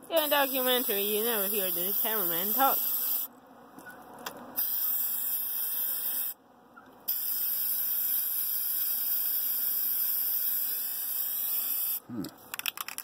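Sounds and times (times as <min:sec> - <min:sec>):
spray can hissing: 0:00.2 - 0:03.3, 0:04.6 - 0:06.3, 0:07.1 - 0:12.0.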